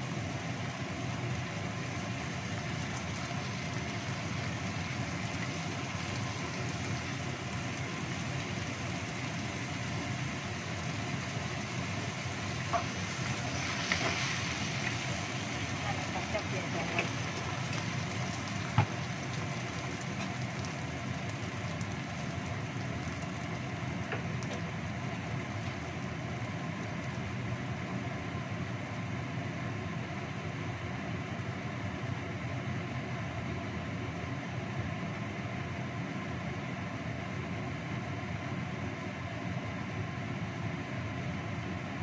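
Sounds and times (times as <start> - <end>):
chilies and onion sizzling in a wok: 0.0 - 37.4
gas burner noise: 0.0 - 42.0.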